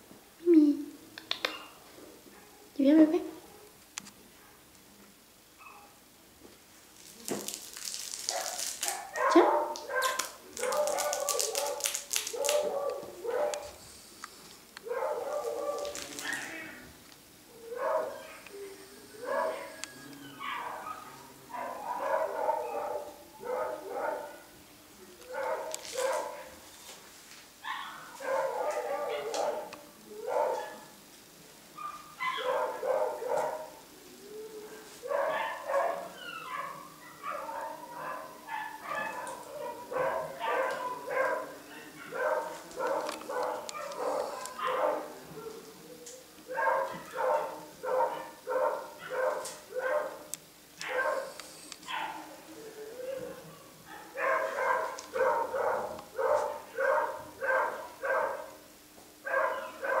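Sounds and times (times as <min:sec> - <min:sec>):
puppy barking in high yaps: 0:08.2 - 0:13.8, 0:14.9 - 0:16.8, 0:17.7 - 0:18.4, 0:19.2 - 0:24.4, 0:25.3 - 0:26.6, 0:27.6 - 0:30.9, 0:31.8 - 0:33.8, 0:35.0 - 0:45.1, 0:46.5 - 0:51.3, 0:51.9 - 0:52.3, 0:53.9 - 0:58.5, 0:59.3 - 1:00.0
puppy yapping and whining: 0:19.1 - 0:23.1, 0:35.0 - 0:45.6.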